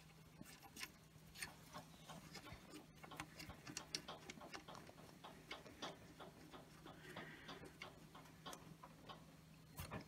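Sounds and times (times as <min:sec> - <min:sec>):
fingers clicking on metal fitting: 0:02.3 - 0:09.3.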